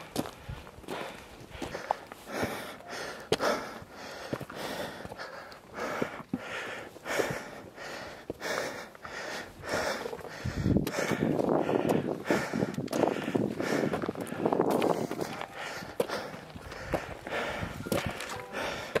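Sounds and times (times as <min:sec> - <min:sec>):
footsteps on rock: 0:00.0 - 0:02.4, 0:04.2 - 0:06.4, 0:10.0 - 0:19.0
heavy breathing: 0:00.2 - 0:19.0.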